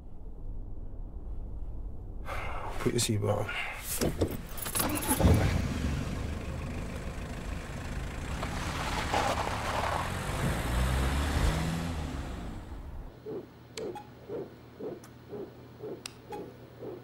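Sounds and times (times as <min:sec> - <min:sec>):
road noise: 0:03.9 - 0:14.0
car engine accelerating: 0:04.9 - 0:13.1.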